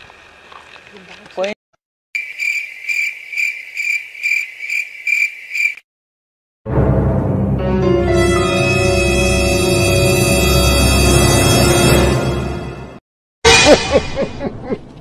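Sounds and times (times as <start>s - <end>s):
cricket chirping: 2.2s - 5.8s
music: 6.7s - 13.0s.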